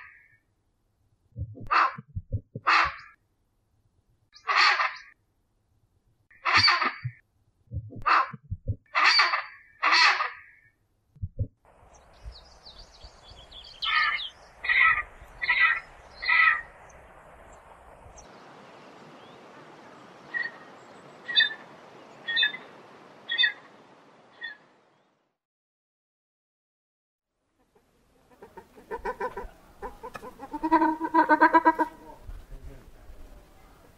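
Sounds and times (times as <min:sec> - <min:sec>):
pheasant calling: 0:11.8 - 0:18.4, 0:19.0 - 0:24.7, 0:28.3 - 0:32.4.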